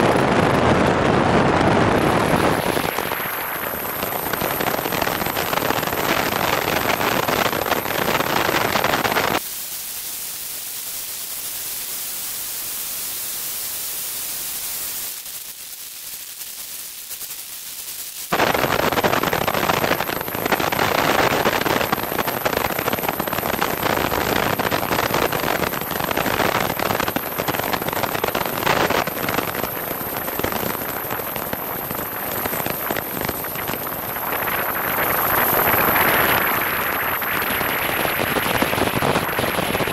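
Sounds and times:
wind buffeting camera: 0.0 - 9.4.

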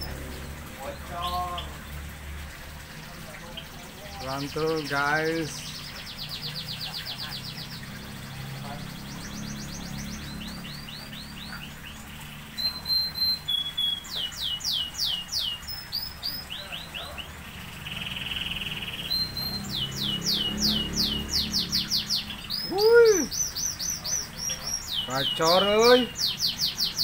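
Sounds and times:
lovebirds chattering: 0.0 - 27.0
bird call rising and falling: 4.3 - 27.0.

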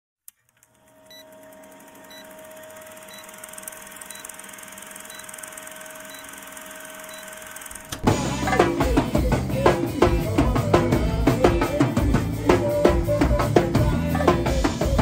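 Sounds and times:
film projector whirring: 0.4 - 8.1.

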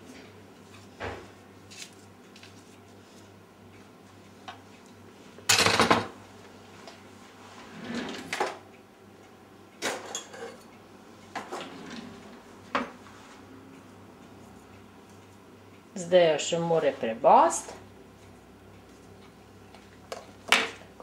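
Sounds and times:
drawer and utensils rattling: 11.4 - 12.2.

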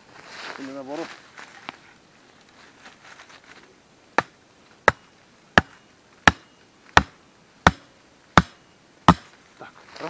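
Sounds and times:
faint rustling: 0.0 - 3.8
stake being hammered into ground: 4.2 - 9.4.

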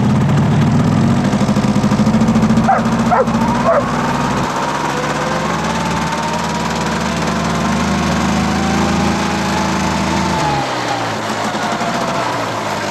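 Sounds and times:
engine running: 0.0 - 12.9
dog barking: 2.6 - 4.0.

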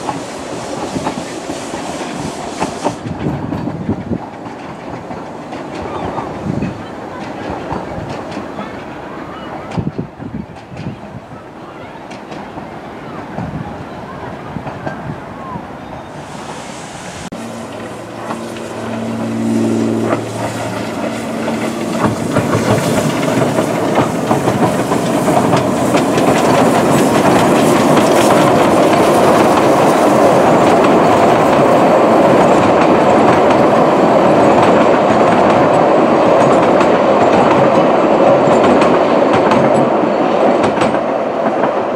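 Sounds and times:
train wheels clattering over rail joints: 0.0 - 9.0, 17.6 - 41.9.

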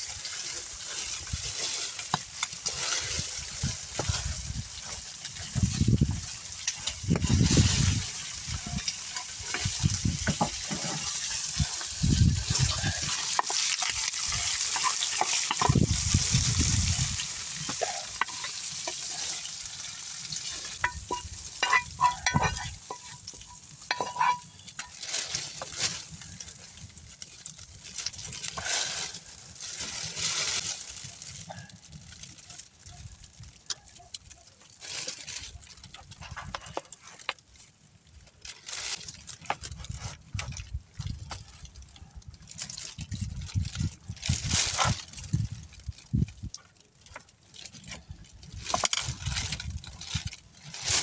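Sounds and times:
meat sizzling in a pan: 0.0 - 31.4
utensil scraping metal pan: 6.6 - 16.3, 17.0 - 25.8.

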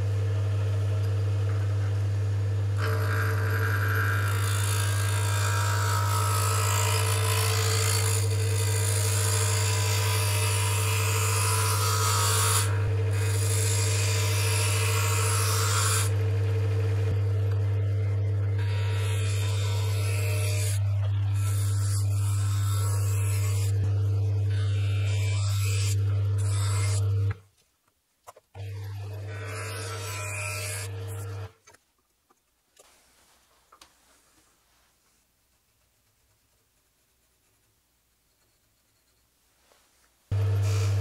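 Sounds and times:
wood lathe humming: 0.0 - 27.4, 28.6 - 31.5, 40.3 - 41.0
gouge scraping spinning wood: 2.8 - 27.3.

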